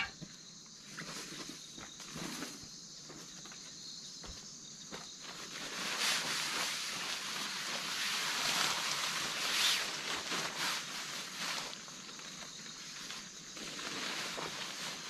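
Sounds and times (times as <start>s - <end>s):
plastic tarpaulin crinkling: 5.2s - 15.0s.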